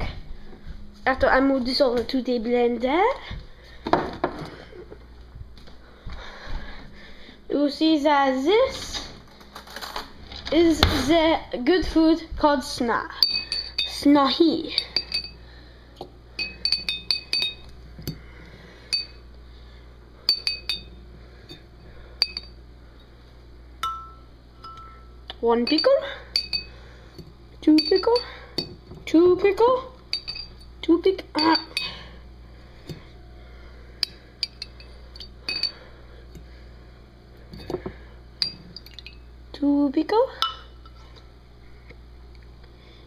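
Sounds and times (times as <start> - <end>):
fork clinking against glass jar: 13.2 - 14.0, 14.7 - 15.4, 16.4 - 18.2, 18.9 - 19.2, 20.3 - 21.6, 22.2 - 22.6, 23.8 - 26.7, 27.7 - 28.8, 30.1 - 30.7, 31.4 - 32.0, 34.0 - 35.8, 38.4 - 39.2, 40.4 - 40.7.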